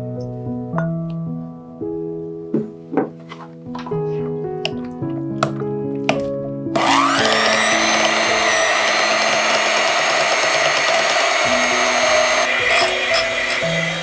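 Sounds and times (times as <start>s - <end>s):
electric hand mixer whine: 6.8s - 14.0s.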